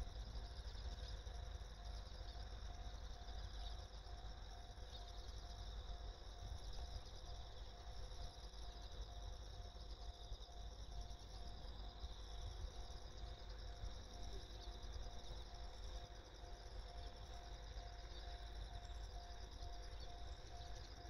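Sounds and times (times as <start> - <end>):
insects trilling: 0.0 - 21.0.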